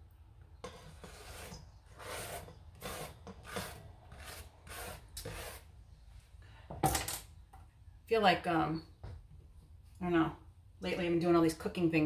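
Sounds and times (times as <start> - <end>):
hand scraping cutting board: 0.6 - 5.7.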